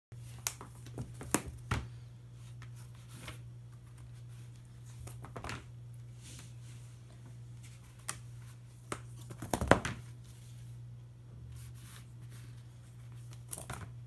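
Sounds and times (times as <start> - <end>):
cat scratching foam mat: 11.5 - 14.0.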